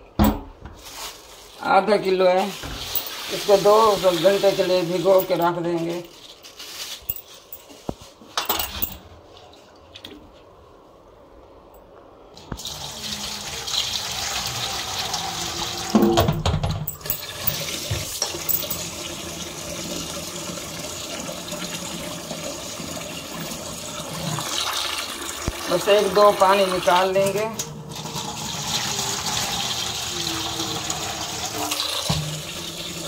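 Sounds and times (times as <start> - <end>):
tap water running: 2.5 - 5.6, 12.4 - 33.0.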